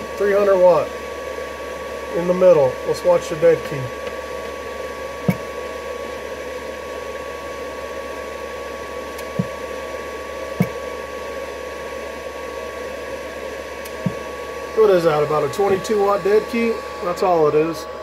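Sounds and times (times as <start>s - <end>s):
thin high whine: 0.0s - 6.5s, 13.0s - 18.0s
fan whirring: 0.0s - 18.0s.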